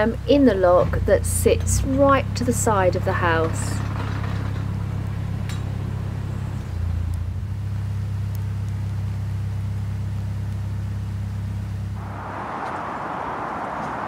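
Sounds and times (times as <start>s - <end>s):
diesel engine idling: 0.0s - 7.6s.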